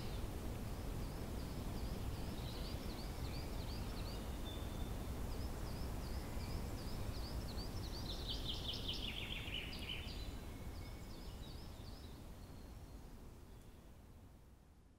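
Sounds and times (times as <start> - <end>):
steady low background noise: 0.0 - 14.9
small birds chirping: 1.0 - 13.8.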